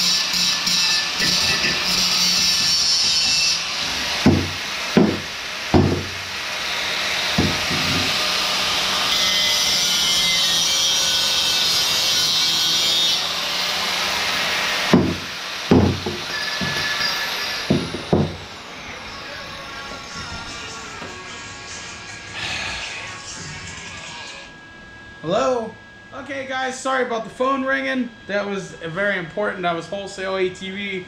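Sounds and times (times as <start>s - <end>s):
angle grinder grinding metal: 0.0s - 22.2s
knocks on wooden bench: 4.2s - 6.2s, 7.4s - 8.1s, 14.9s - 16.9s, 17.7s - 18.4s.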